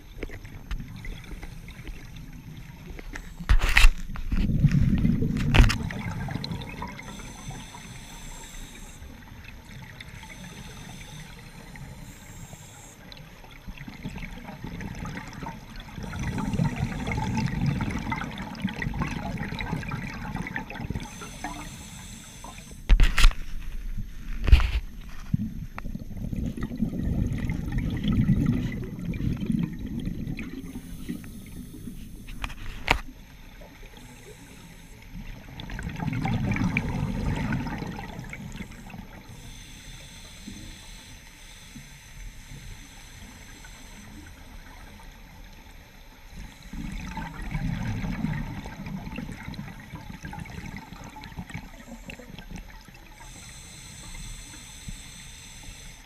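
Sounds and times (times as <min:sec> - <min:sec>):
exhaled bubbles underwater: 0:00.0 - 0:03.4, 0:04.3 - 0:22.8, 0:25.4 - 0:41.1, 0:42.4 - 0:56.0
regulator hiss: 0:06.8 - 0:09.3, 0:10.1 - 0:13.0, 0:20.9 - 0:22.9, 0:30.6 - 0:32.6, 0:33.2 - 0:35.6, 0:36.8 - 0:47.5, 0:53.1 - 0:56.0.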